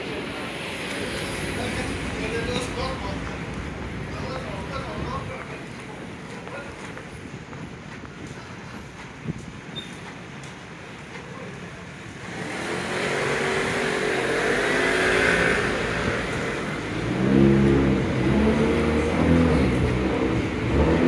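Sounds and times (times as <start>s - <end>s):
bus engine revving: 12.2s - 21.0s.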